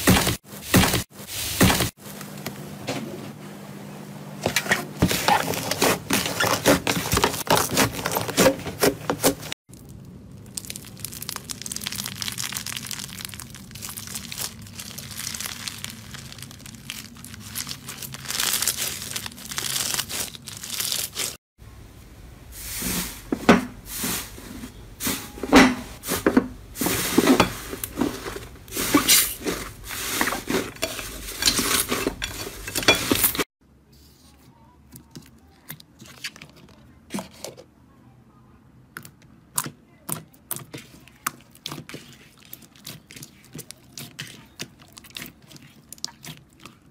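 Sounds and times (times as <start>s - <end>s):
slime crackling and popping: 9.7s - 21.4s.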